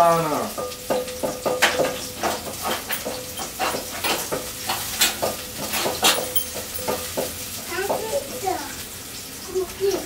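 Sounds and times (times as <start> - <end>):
tomatoes sizzling: 0.0 - 10.0
wooden spoon scraping a pot: 0.9 - 8.4.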